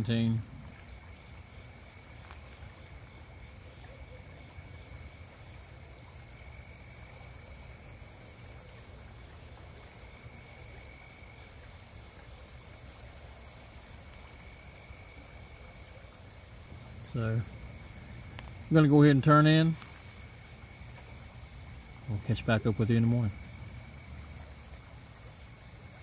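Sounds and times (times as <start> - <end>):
insect high trill: 0.0 - 26.0
insect pulsed chirping: 0.0 - 26.0
low steady rumble: 16.5 - 26.0.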